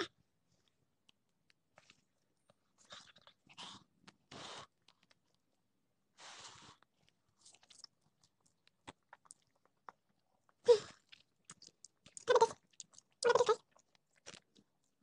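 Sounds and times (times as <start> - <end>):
faint chewing: 0.5 - 15.0
mouth clicks: 11.5 - 13.6.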